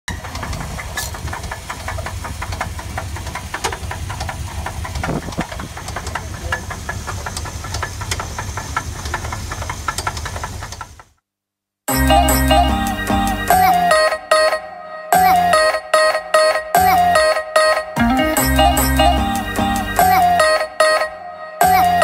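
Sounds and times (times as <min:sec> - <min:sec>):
engine running with rapid knocking: 0:00.1 - 0:11.2.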